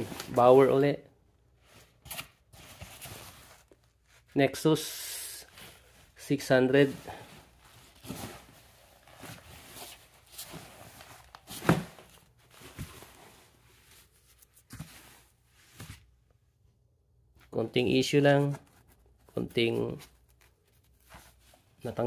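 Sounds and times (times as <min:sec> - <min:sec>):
fabric rustling: 0:05.5 - 0:16.2.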